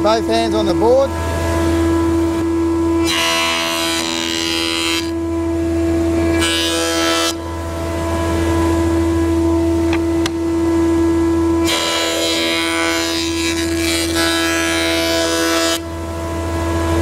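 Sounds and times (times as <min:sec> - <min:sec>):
planer humming: 0:00.0 - 0:17.0
planer cutting board: 0:02.4 - 0:07.5, 0:11.6 - 0:15.9.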